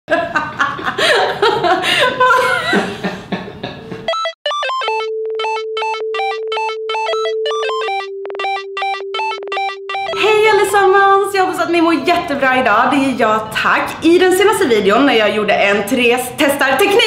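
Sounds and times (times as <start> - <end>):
laughter: 0.1 - 4.0
electronic synthesizer jingle: 4.1 - 10.9.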